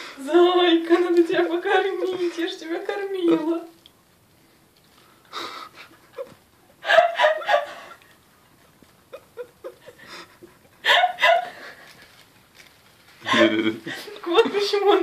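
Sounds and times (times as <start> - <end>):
woman laughing: 5.4 - 8.1, 9.0 - 12.0
kitten rustling in plastic bag: 11.7 - 14.7.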